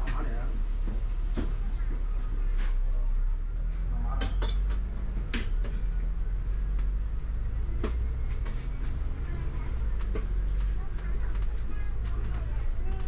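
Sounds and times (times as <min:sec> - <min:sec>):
bus engine and road rumble: 0:00.0 - 0:13.0
bodywork rattles and clicks: 0:04.2 - 0:13.0.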